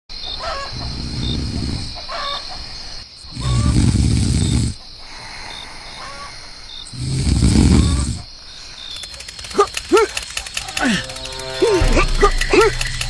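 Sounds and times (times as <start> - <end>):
crickets chirping: 0.1 - 13.0
cartoon snoring: 0.9 - 2.0, 3.3 - 4.8, 6.9 - 8.3.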